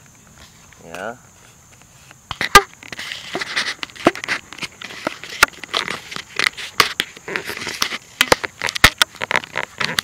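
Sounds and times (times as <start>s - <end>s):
camera handling crackles and knocks: 1.8s - 10.0s.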